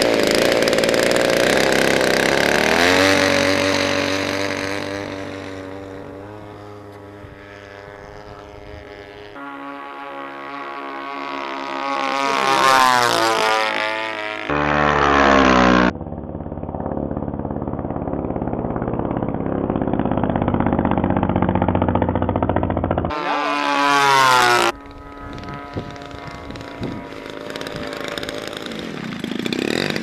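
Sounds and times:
model airplane engine: 0.0s - 30.0s.

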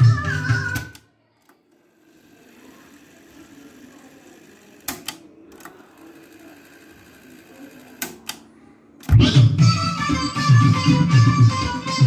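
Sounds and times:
cassette deck rewinding whir: 0.7s - 8.4s
sharp mechanical clicks: 0.8s - 8.4s.

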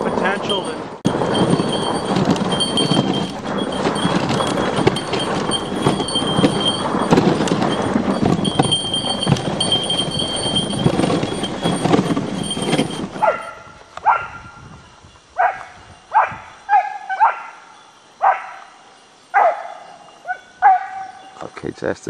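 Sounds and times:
sled runners scraping on icy snow: 0.0s - 14.7s
dogs barking and yipping: 1.1s - 14.6s, 15.4s - 21.4s.

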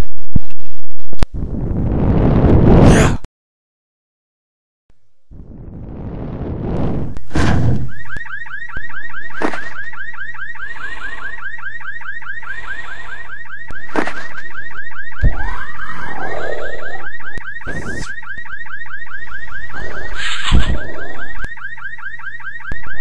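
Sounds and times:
car alarm chirping: 7.9s - 23.0s.

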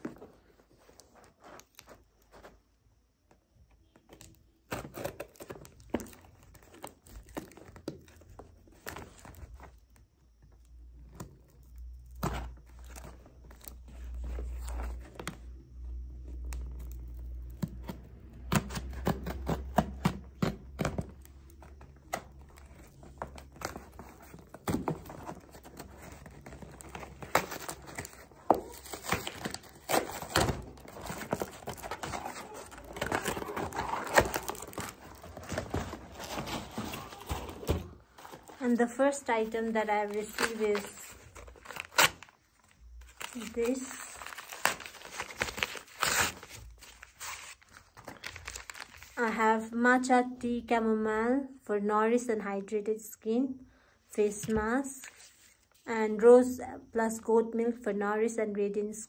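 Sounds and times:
cardboard tearing: 23.5s - 38.6s, 40.1s - 42.4s, 43.1s - 49.2s.

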